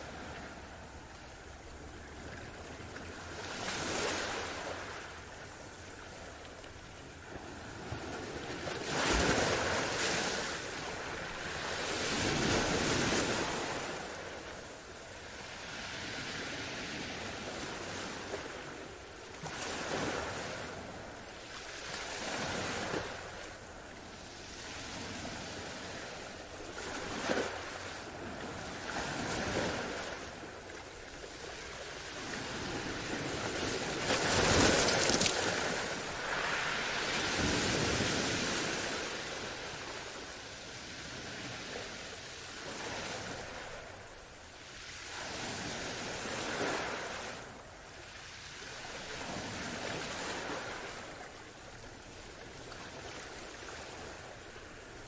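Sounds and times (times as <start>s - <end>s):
ocean waves breaking: 7.3s - 14.5s, 24.4s - 44.0s.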